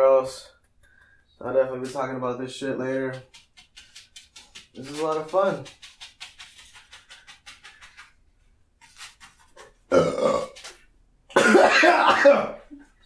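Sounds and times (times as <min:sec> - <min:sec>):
man burping loudly: 0:09.9 - 0:10.7.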